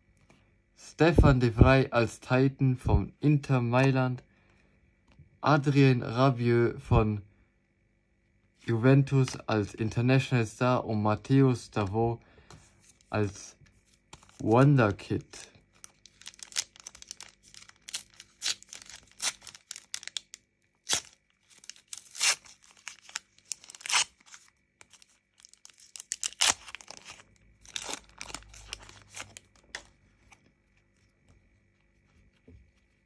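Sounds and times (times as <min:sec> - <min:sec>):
cards rustling: 0:12.5 - 0:31.2
foil wrapper tearing and crinkling: 0:15.7 - 0:29.9.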